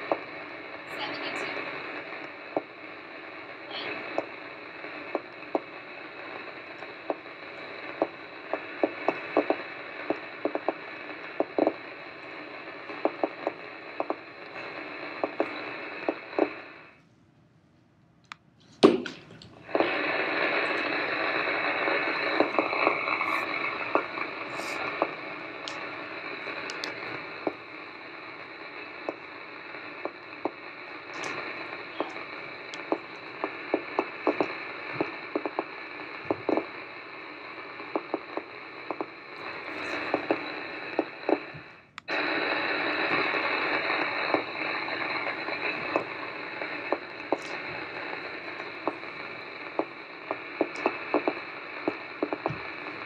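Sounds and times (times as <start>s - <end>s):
room noise hiss: 0.0s - 53.0s
bare feet tapping on floor: 50.6s - 52.7s.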